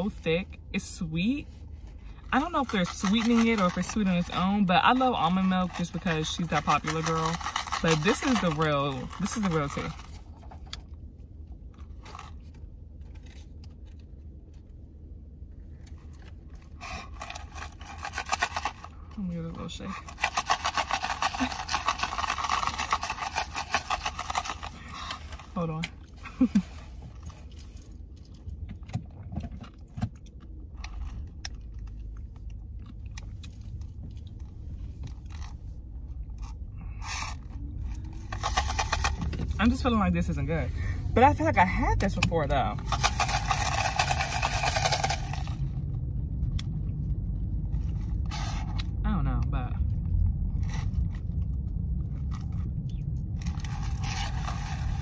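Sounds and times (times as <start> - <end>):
low steady rumble: 0.0 - 55.0
plastic cup clicks and rustles: 2.4 - 10.8, 16.2 - 19.0, 20.0 - 25.6, 37.2 - 39.6, 42.2 - 45.6.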